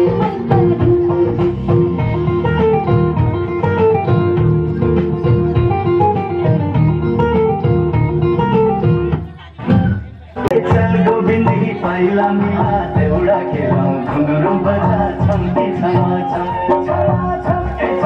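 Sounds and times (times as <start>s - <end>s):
plucked string instrumental music: 0.0s - 18.0s.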